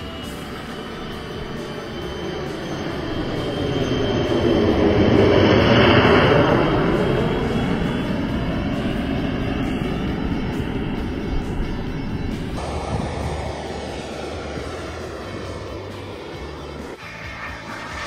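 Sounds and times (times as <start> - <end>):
model jet turbine flying past: 0.0 - 18.0.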